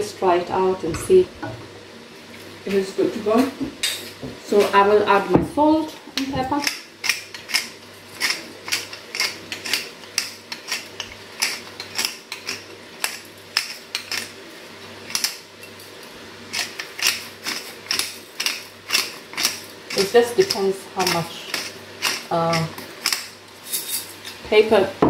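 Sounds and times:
seasoning mill grinding clicks: 6.2s - 24.4s.

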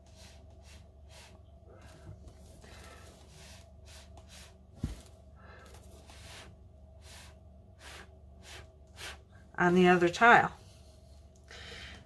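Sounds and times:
soft puffs of breath: 5.4s - 9.4s.

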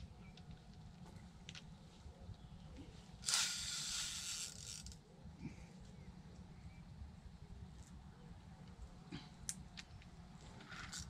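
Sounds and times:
fishing reel ratcheting: 3.2s - 5.0s.

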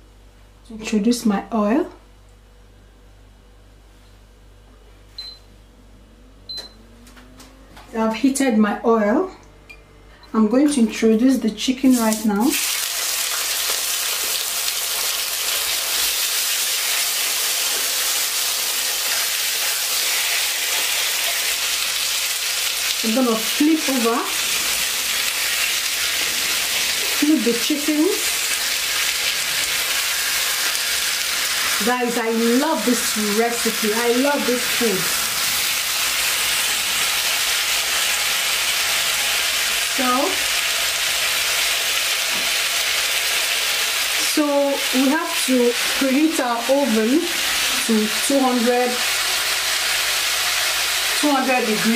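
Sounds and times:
chicken sizzling in oil: 11.9s - 51.9s.

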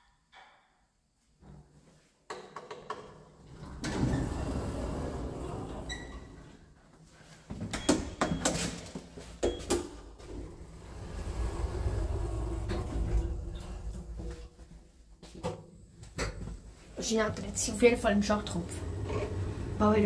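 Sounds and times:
lift doors rumbling open: 3.4s - 6.7s, 9.5s - 15.2s, 17.7s - 20.0s
knocks and footsteps: 6.9s - 19.7s.

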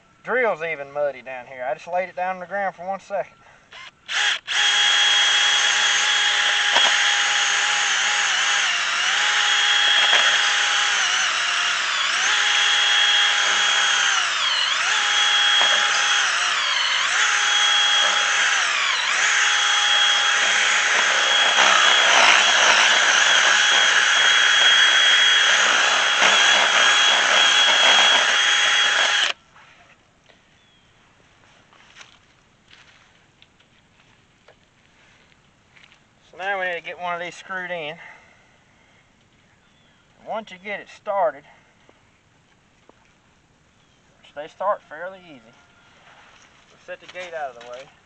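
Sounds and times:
cordless drill boring into wood: 3.7s - 29.4s.

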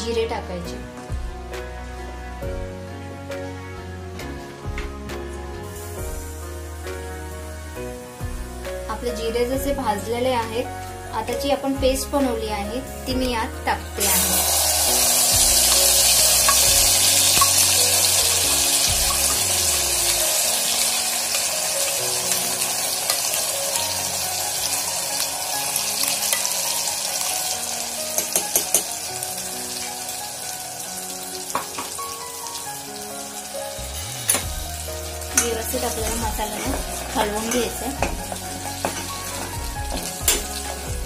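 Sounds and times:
paste sizzling in hot oil: 5.3s - 8.7s, 14.0s - 41.0s.

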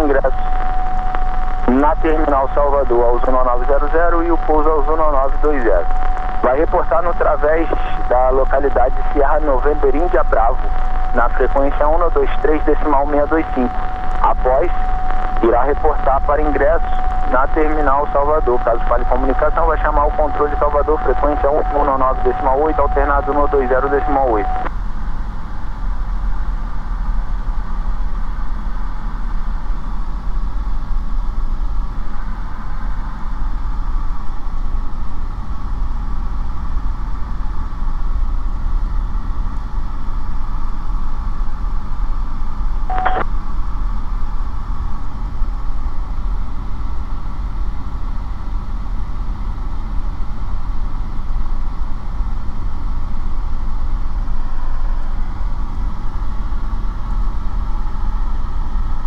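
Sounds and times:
aircraft engine and propeller drone: 1.4s - 26.3s
radio click: 42.9s - 43.3s.

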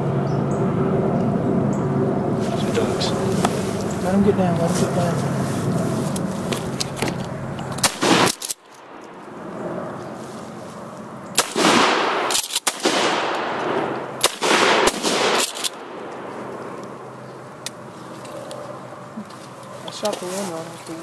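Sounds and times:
shotgun shots echoing: 7.8s - 8.5s, 11.4s - 16.0s.

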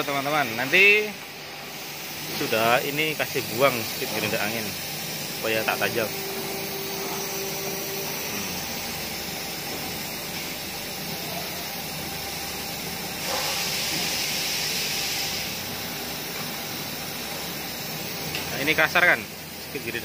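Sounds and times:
compressed air hissing from hose: 0.5s - 17.9s
air hose blast: 13.2s - 15.6s.

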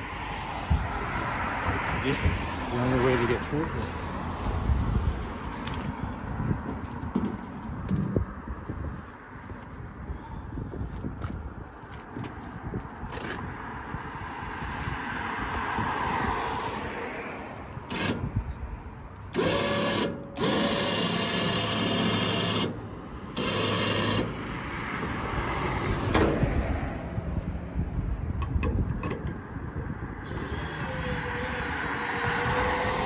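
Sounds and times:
electric hoist motor humming: 19.3s - 24.4s, 30.3s - 33.0s.

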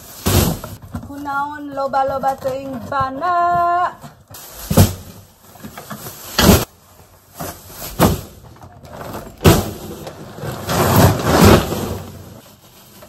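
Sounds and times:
rustling clothes and bags: 0.0s - 13.0s.

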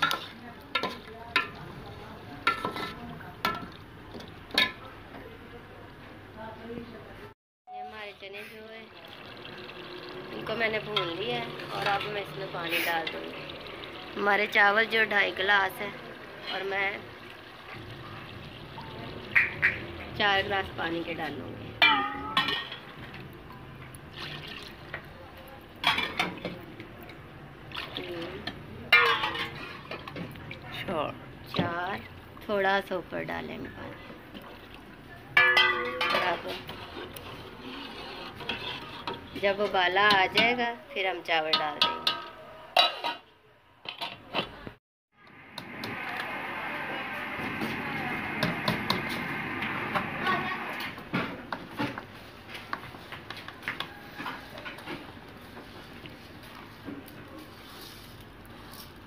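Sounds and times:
faint sizzle: 0.2s - 39.4s, 45.2s - 59.0s
water pouring into metal pot: 8.2s - 25.2s, 45.4s - 51.2s
metal ladle scraping a pot: 35.6s - 39.7s.

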